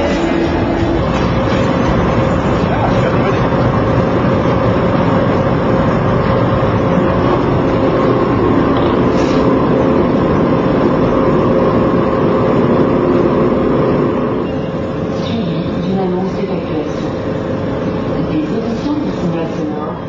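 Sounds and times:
vehicle engine running: 0.0 - 14.4.

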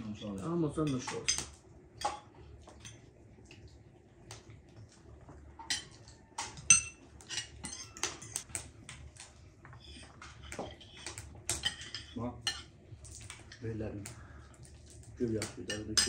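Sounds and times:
cutlery clinking on plates: 5.6 - 8.5, 9.9 - 12.7.

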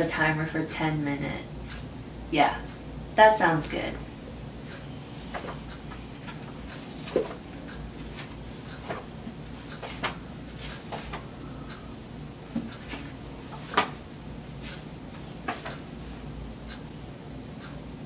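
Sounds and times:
book pages flipping: 8.0 - 11.2.

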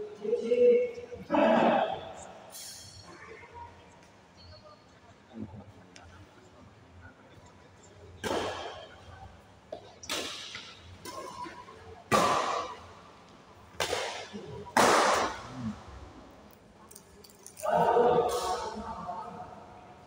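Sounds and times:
rackets hitting shuttlecock: 8.2 - 9.0, 9.7 - 12.9, 13.7 - 15.4.

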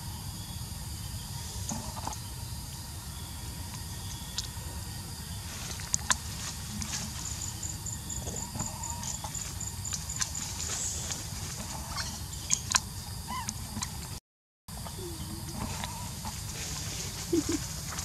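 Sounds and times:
faint pulsing high chirp: 14.8 - 16.2.

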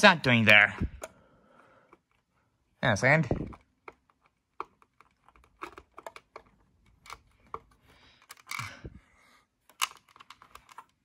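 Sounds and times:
plastic toy bricks clicking: 3.5 - 8.8, 9.7 - 11.0.

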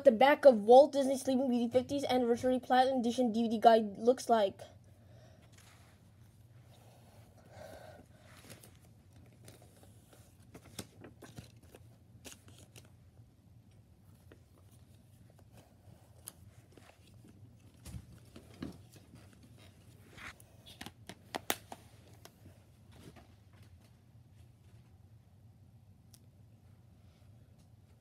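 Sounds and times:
paper rustling: 8.2 - 13.0, 14.1 - 23.9.

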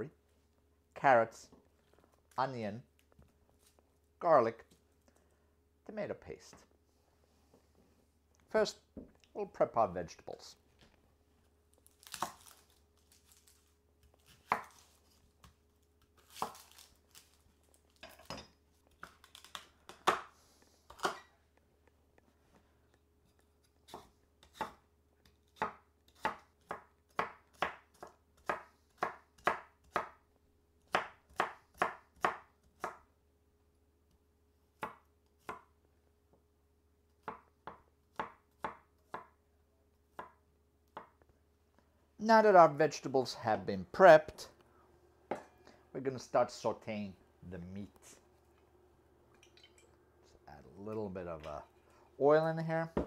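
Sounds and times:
knife chopping on wooden board: 25.6 - 30.2, 30.9 - 33.0, 37.2 - 39.4.

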